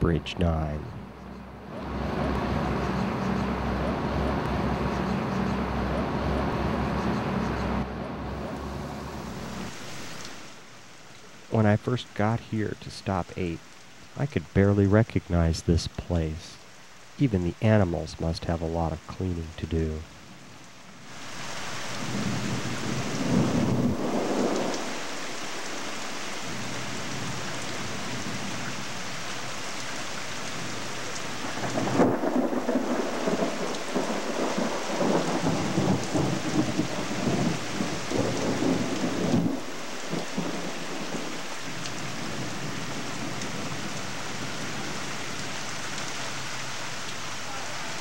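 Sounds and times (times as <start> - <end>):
steady rain: 0.0 - 48.0
thunder rumbling: 22.0 - 25.7, 31.4 - 45.0.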